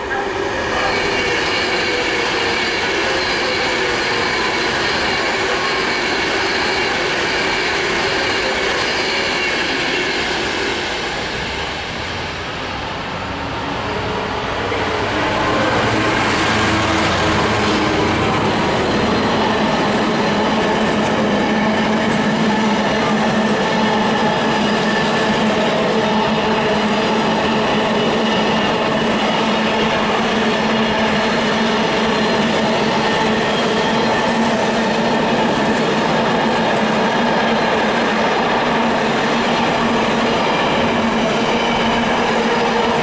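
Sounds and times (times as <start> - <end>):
diesel locomotive engine rumble: 0.0 - 43.0.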